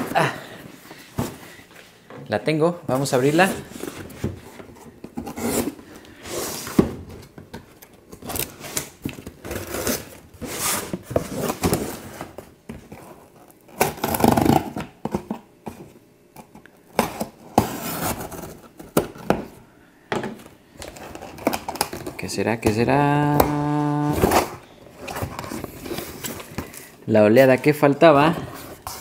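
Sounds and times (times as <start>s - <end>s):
cardboard box rustling and scraping: 3.2s - 6.9s, 9.4s - 13.4s.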